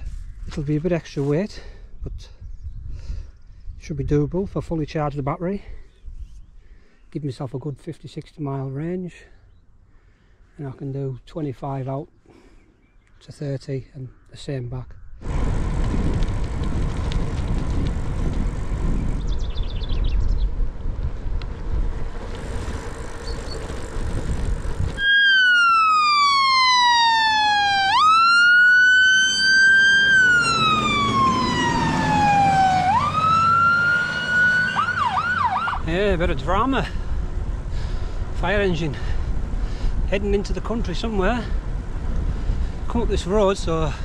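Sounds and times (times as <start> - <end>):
steady rushing noise: 15.2 - 25.0
fire engine siren wailing: 25.0 - 35.9.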